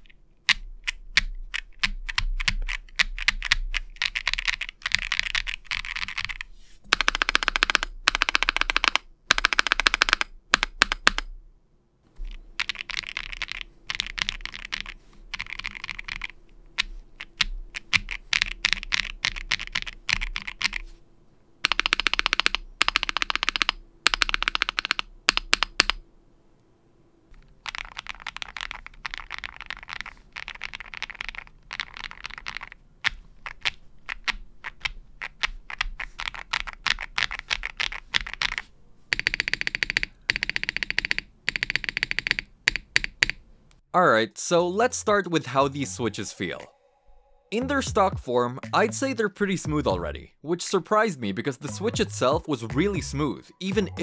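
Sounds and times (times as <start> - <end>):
fast typing on mechanical keyboard: 0.0 - 11.3, 12.2 - 20.9, 21.6 - 26.0, 27.4 - 43.4.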